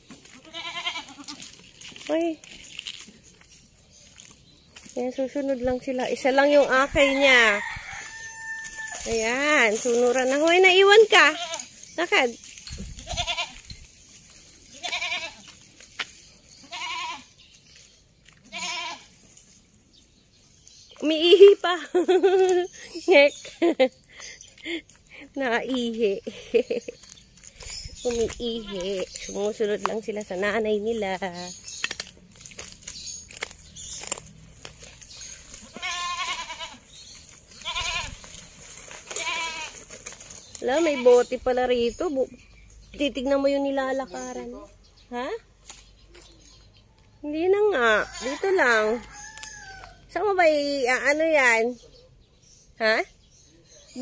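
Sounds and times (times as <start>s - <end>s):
faint clicks and rustles: 0.1s - 5.0s, 31.5s - 41.0s
goats bleating: 0.3s - 1.6s, 11.0s - 11.7s, 13.0s - 13.7s, 14.6s - 15.6s, 16.6s - 17.3s, 18.5s - 19.1s, 35.6s - 36.9s, 37.5s - 38.3s, 39.1s - 39.9s.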